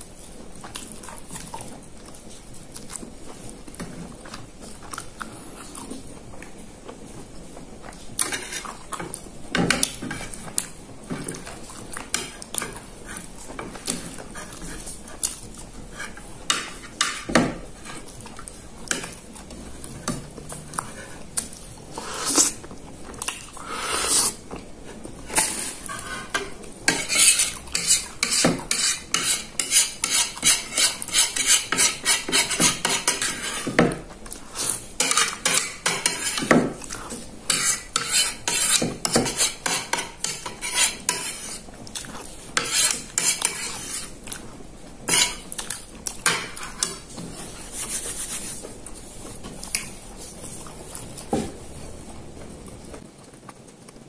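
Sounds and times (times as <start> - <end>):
metal spoon scraping a ceramic plate: 25.3 - 33.8, 34.6 - 36.6, 37.5 - 41.6, 42.6 - 44.1, 45.1 - 45.4.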